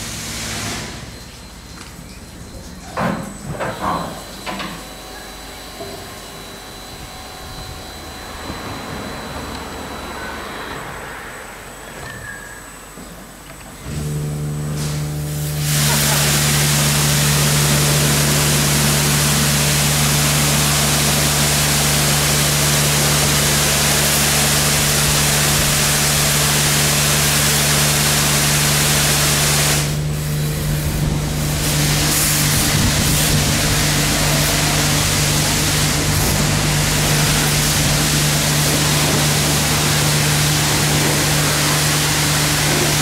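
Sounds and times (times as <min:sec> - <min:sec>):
motor humming: 0:03.4 - 0:10.8, 0:13.8 - 0:43.0
water spray hissing: 0:14.8 - 0:43.0.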